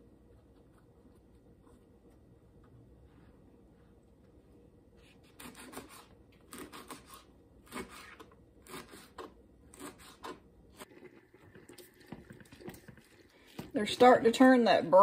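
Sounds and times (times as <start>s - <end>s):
knife slicing leaves on cutting board: 5.3s - 10.9s.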